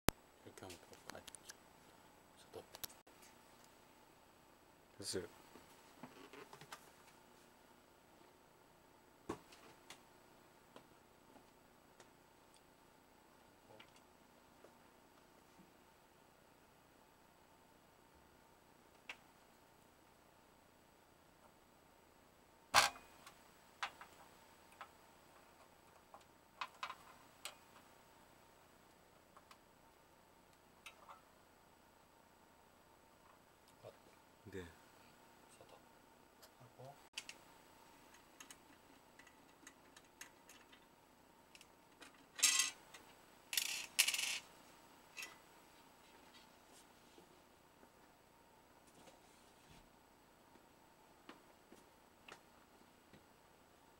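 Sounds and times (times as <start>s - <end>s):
plastic parts clicking and tapping: 38.1s - 40.9s.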